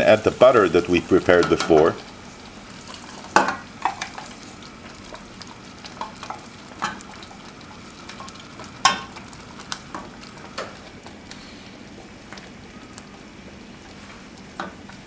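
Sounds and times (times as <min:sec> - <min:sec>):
faint sizzle: 0:00.0 - 0:15.0.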